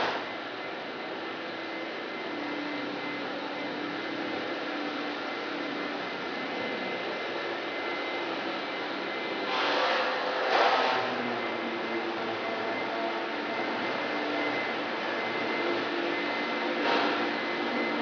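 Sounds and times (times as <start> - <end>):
machine hum and hiss: 0.0 - 18.0
faint steady tones: 0.3 - 9.5.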